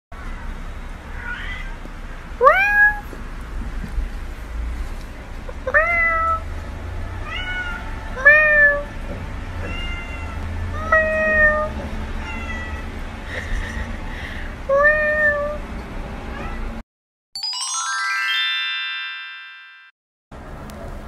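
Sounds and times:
cat meowing: 1.1s - 1.8s, 2.4s - 3.1s, 5.6s - 6.5s, 7.2s - 8.9s, 9.6s - 12.9s, 14.7s - 15.6s, 16.3s - 16.8s.

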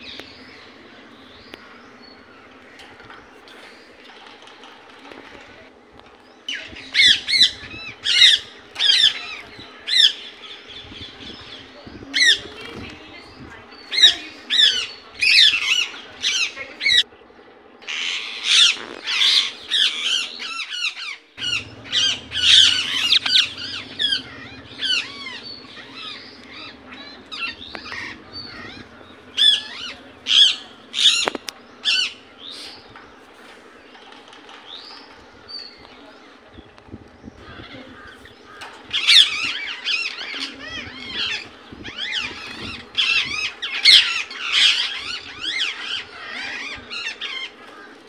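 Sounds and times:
parakeet high-pitched calls: 17.8s - 32.2s, 37.4s - 47.6s.

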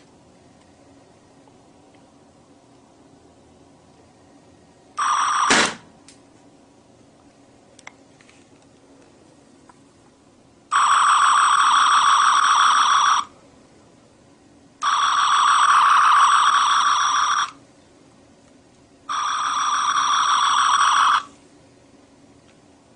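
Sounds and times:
electronic toy phaser buzzing: 5.0s - 5.8s, 10.7s - 13.3s, 14.8s - 17.6s, 19.1s - 21.3s.

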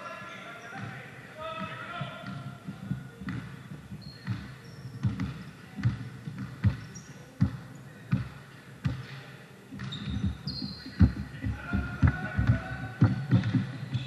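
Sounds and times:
sneaker squeaks: 0.0s - 14.0s
basketball dribbling on court: 2.0s - 9.1s, 9.8s - 14.0s.

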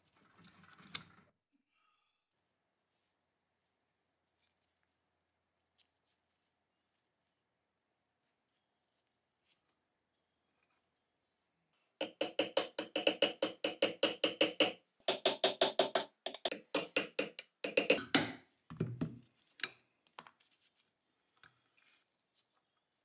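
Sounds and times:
hammer tapping pin punch: 12.0s - 18.3s.

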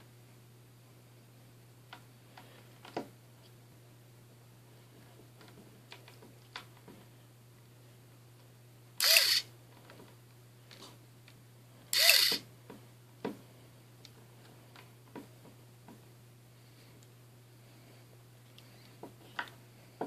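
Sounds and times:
small electric motor whirring: 9.0s - 9.5s, 11.9s - 12.4s.

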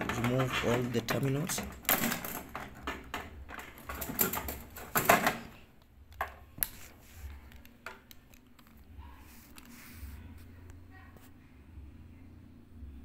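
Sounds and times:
pliers scraping and rattling metal: 0.0s - 5.6s.

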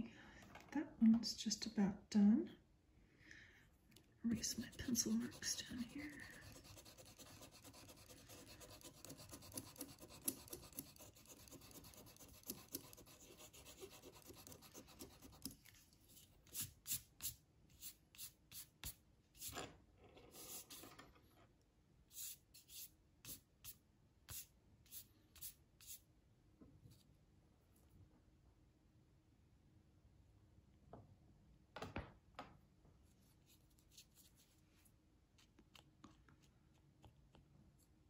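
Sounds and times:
eraser rubbing on paper: 4.4s - 15.5s, 20.3s - 20.8s
pen scratching on paper: 4.4s - 15.6s.

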